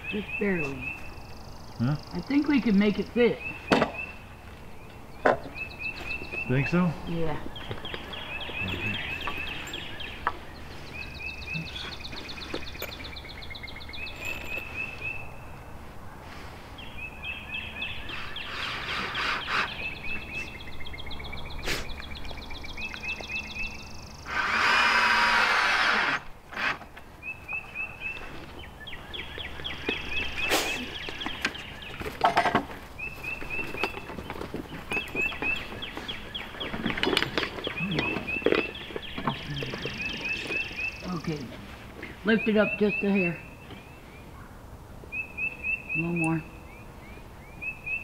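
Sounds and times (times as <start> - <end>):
birds chirping: 0.0 - 48.0
power tool running: 24.2 - 26.8.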